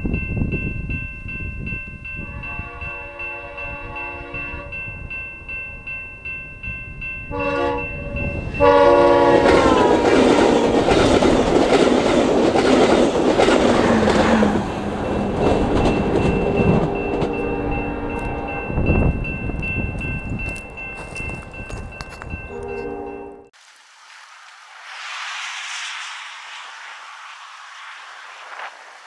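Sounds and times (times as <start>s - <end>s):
crossing bell dinging: 0.0s - 10.2s, 14.7s - 23.5s
train horn: 2.2s - 4.8s, 7.3s - 10.3s, 22.5s - 23.5s
train rushing and clattering: 6.6s - 22.8s.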